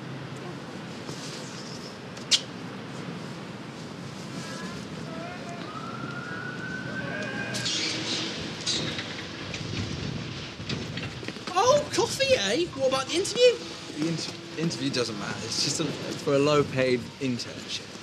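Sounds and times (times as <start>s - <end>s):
low traffic hum: 0.0s - 18.0s
distant siren tone rising: 5.0s - 8.8s.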